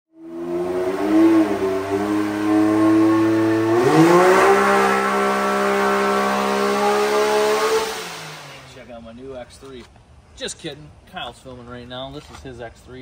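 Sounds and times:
engine running under load: 0:00.2 - 0:08.8.

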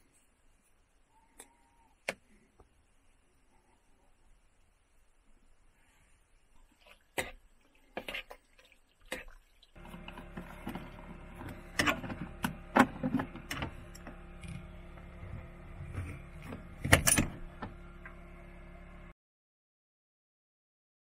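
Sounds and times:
steady hum: 0:09.8 - 0:19.2
metal carabiner clinking: 0:16.9 - 0:17.4.

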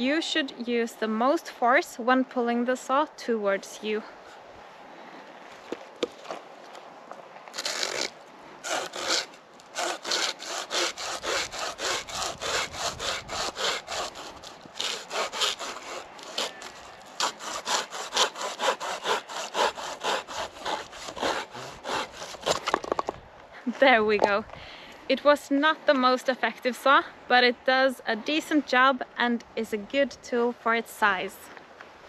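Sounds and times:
hand saw rasping through branch: 0:07.5 - 0:23.0.

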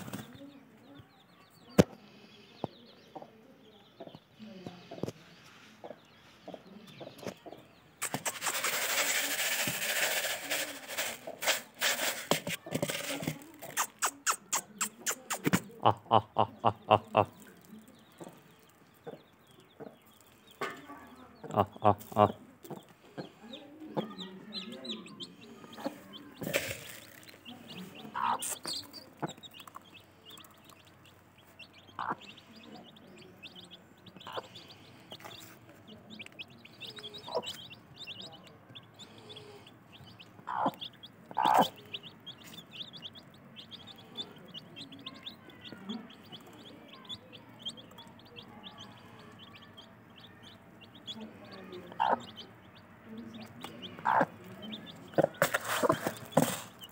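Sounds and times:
chicks peeping: 0:00.0 - 0:56.9
hen clucking softly: 0:27.7 - 0:30.9, 0:34.0 - 0:34.5, 0:40.0 - 0:43.1, 0:51.9 - 0:52.8, 0:53.7 - 0:56.0.

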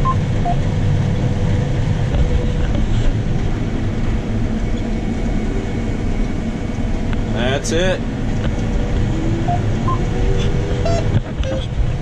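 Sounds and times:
combine harvester droning: 0:00.0 - 0:12.0.

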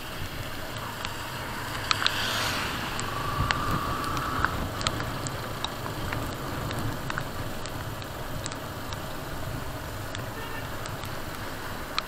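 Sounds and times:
wind rush: 0:00.0 - 0:07.6
motorcycle engine rumble: 0:00.0 - 0:12.0.

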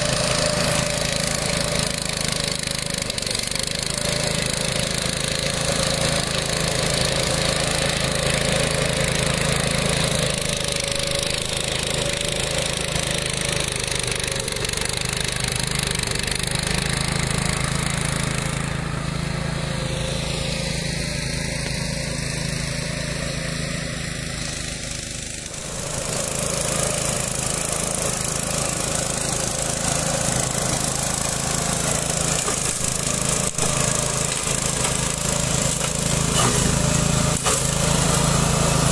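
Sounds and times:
mulcher cutting grass: 0:00.0 - 0:38.9
small engine running: 0:00.0 - 0:38.9.

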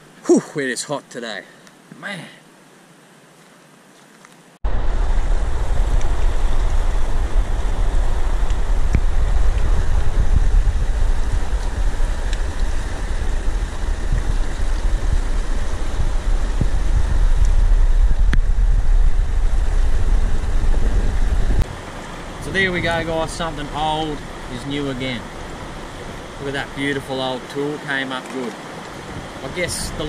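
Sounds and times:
wind buffeting microphone: 0:04.6 - 0:27.0, 0:28.7 - 0:30.0.

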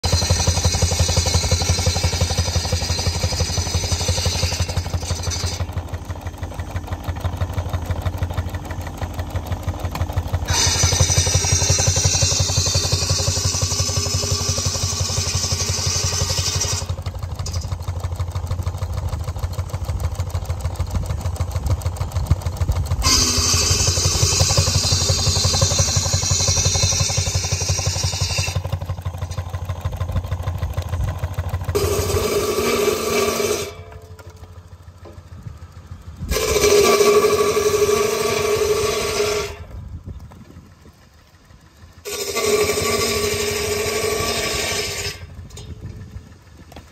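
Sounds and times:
buzz saw cutting wood: 0:00.0 - 0:06.5, 0:10.0 - 0:17.7, 0:23.0 - 0:29.7, 0:31.7 - 0:34.3, 0:36.3 - 0:39.7, 0:42.0 - 0:45.3
steam engine exhaust chuffing: 0:00.0 - 0:46.9.

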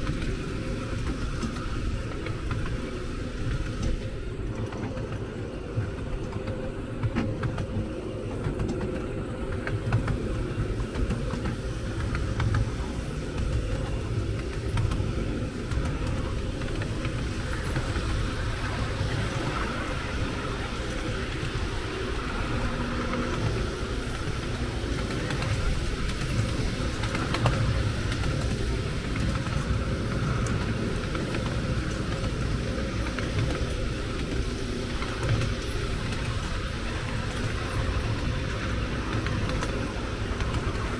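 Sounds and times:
light clicks of train on track: 0:00.0 - 0:40.9
miniature train rumbling: 0:00.0 - 0:40.9.

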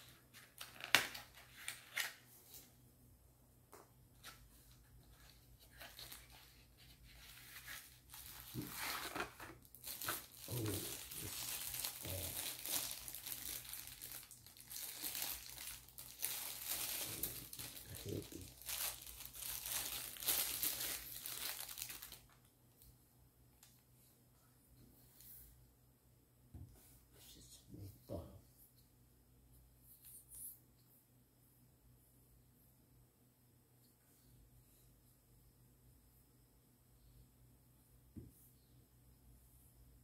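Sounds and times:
plastic bag crinkling: 0:05.7 - 0:22.4.

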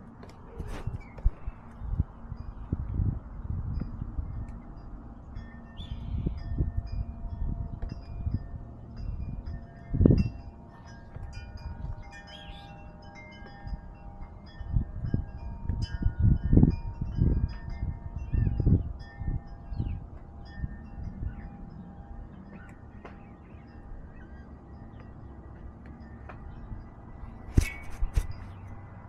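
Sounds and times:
low thumps and rumbles: 0:00.0 - 0:12.1
wind chimes ringing: 0:00.5 - 0:29.0.

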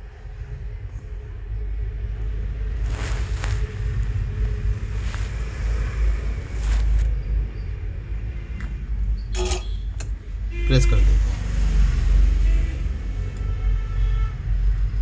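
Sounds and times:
low steady rumble: 0:00.0 - 0:10.5.

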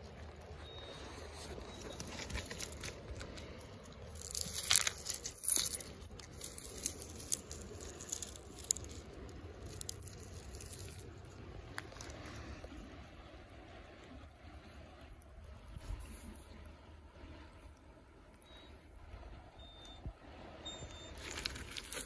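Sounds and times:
grass and gravel crunching: 0:00.0 - 0:12.9, 0:21.0 - 0:22.0
stones clicking: 0:02.0 - 0:12.2.

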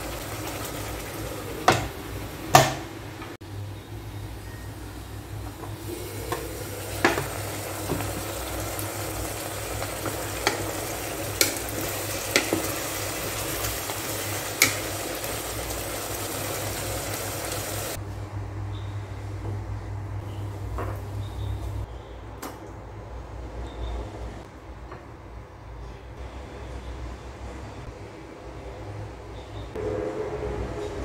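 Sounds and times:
liver sizzling in pot: 0:00.0 - 0:02.7, 0:05.8 - 0:18.0.

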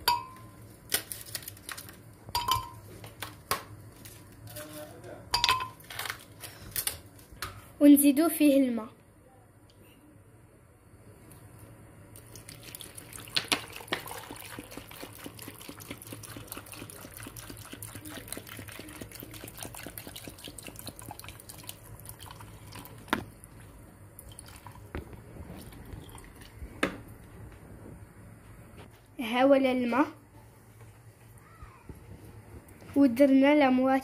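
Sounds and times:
water pouring into blender jar: 0:12.3 - 0:23.2.

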